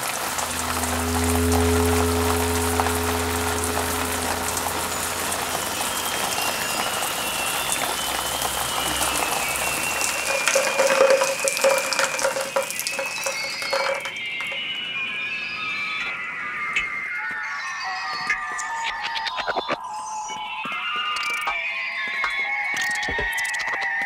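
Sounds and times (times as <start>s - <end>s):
low hum: 0.0s - 14.2s
crackling rain-like hiss: 0.0s - 14.6s
pulsing mid-pitched tone: 0.0s - 15.0s
scattered higher tones: 0.0s - 18.0s.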